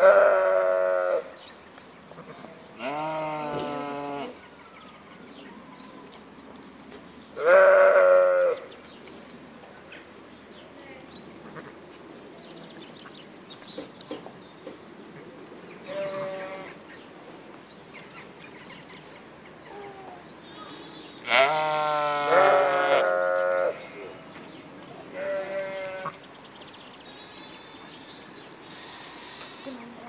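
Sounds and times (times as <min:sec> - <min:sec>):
sheep bleating: 0:02.2 - 0:04.4, 0:07.4 - 0:08.6, 0:15.9 - 0:16.8, 0:21.2 - 0:23.9, 0:25.1 - 0:26.2.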